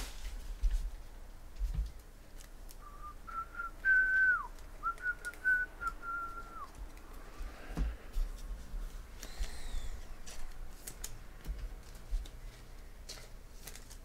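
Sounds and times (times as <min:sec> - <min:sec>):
person whistling a tune: 0:02.8 - 0:06.7.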